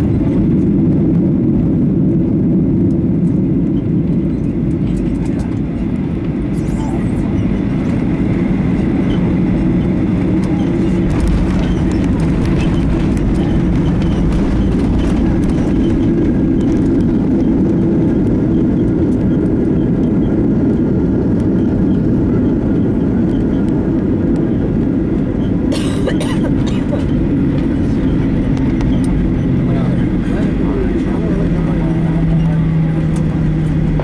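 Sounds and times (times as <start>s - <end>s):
jet engines rumbling: 0.0s - 34.0s
wheels rolling on runway: 7.2s - 25.7s.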